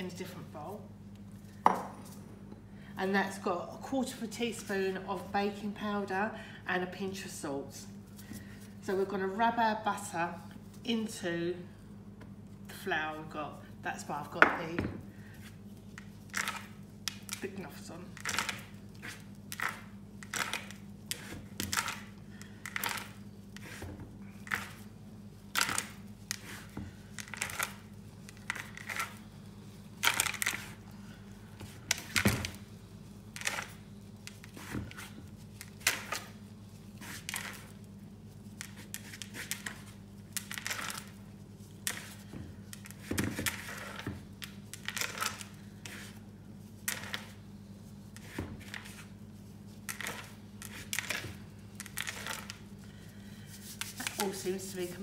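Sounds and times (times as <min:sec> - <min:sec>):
steady low hum: 0:00.0 - 0:55.0
hands rubbing flour in bowl: 0:15.3 - 0:55.0.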